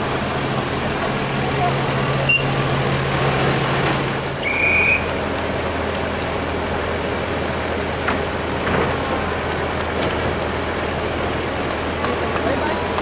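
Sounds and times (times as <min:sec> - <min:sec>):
diesel railcar engine idling: 0:00.0 - 0:13.0.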